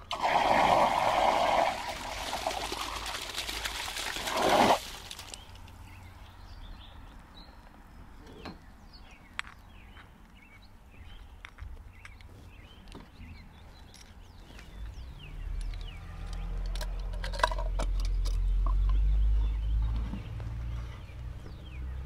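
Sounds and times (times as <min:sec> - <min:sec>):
water rushing out: 0:00.0 - 0:05.6.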